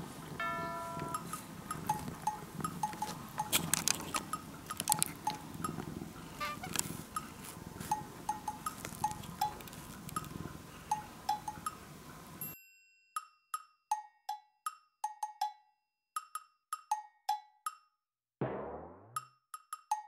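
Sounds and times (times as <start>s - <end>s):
wood block tune: 0.4s - 7.3s, 7.9s - 10.3s, 13.2s - 20.0s
faint clicks: 1.0s - 11.8s.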